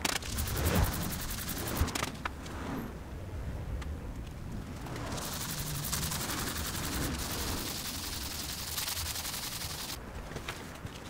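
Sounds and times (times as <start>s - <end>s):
sandpaper rasping on painted metal: 0.2s - 1.9s, 5.1s - 10.0s.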